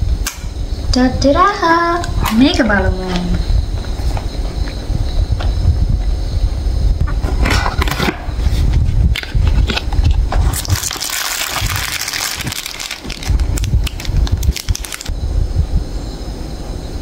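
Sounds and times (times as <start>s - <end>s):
plastic wrappers crinkling: 9.1s - 15.1s
cardboard carton tearing: 9.2s - 15.1s.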